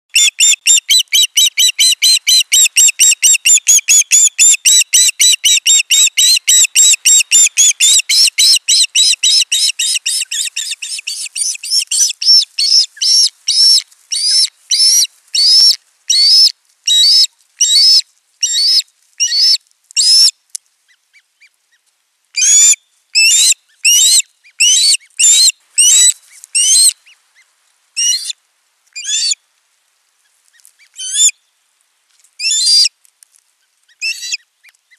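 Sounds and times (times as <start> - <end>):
osprey chirping calls: 0.1 - 20.3.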